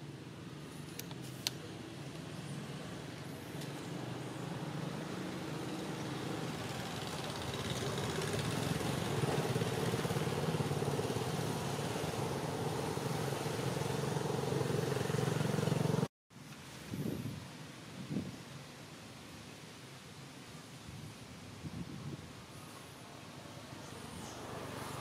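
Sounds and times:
motor engine humming: 3.6 - 16.1.

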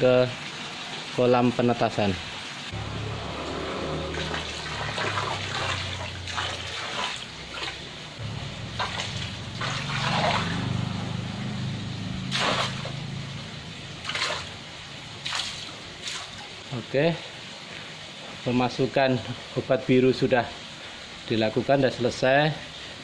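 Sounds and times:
liquid splashing into pond: 2.7 - 16.7
low steady hum: 2.7 - 16.8.

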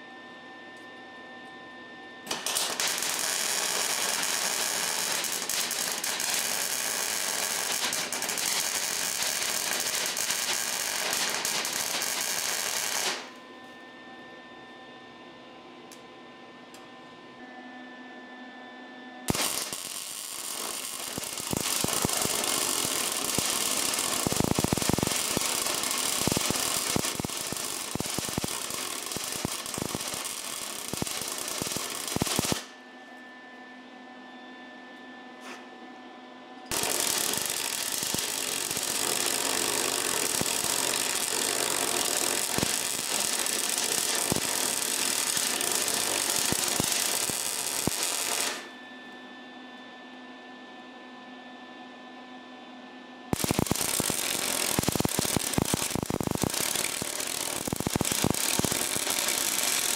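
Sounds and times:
welder arc crackling: 2.3 - 13.3, 19.3 - 32.7, 36.7 - 48.7, 53.4 - 59.9.

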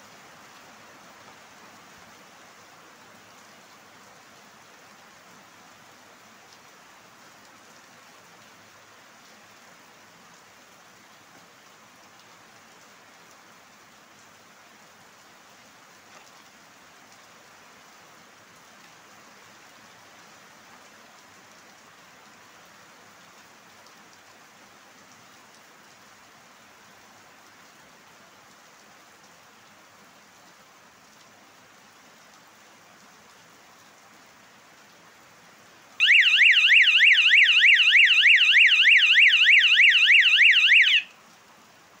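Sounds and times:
faint steady hiss: 0.0 - 42.0
warbling siren horn: 36.0 - 41.1.

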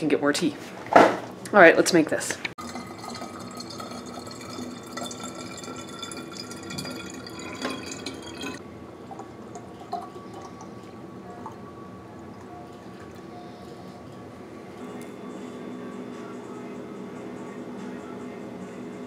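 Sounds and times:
water splashing into glass jar: 2.6 - 8.6.

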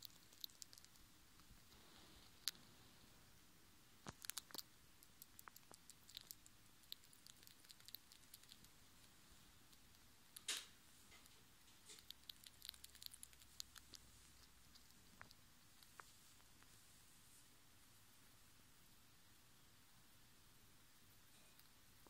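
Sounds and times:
squirrel gnawing crunches: 0.0 - 3.0, 4.0 - 16.8.

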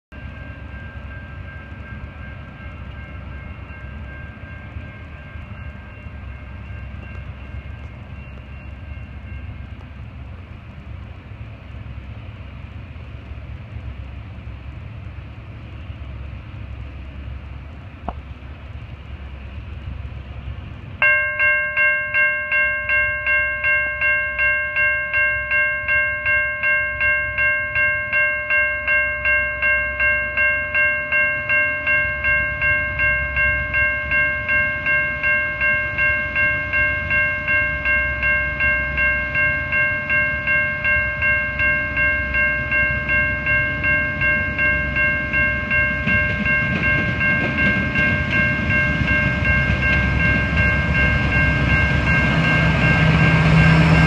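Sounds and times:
crossing warning bells ringing: 0.1 - 18.0, 18.6 - 54.0
distant train horn: 32.8 - 54.0.

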